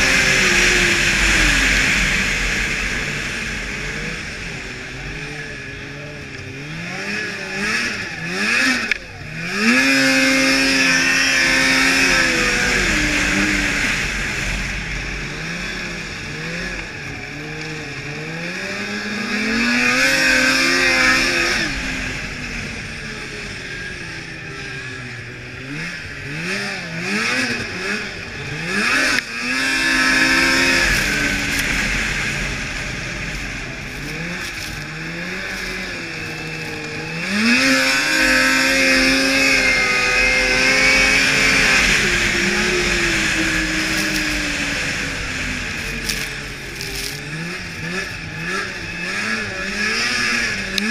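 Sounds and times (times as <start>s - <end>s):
snowmobile engine revving: 0.0s - 50.9s.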